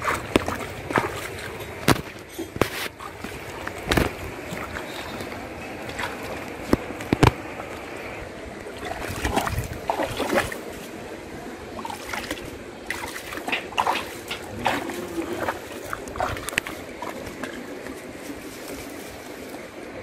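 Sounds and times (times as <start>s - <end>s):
water sloshing around legs: 0.0s - 19.7s
steady noisy background: 0.0s - 20.0s
sharp splashes: 8.6s - 10.8s, 11.7s - 17.6s.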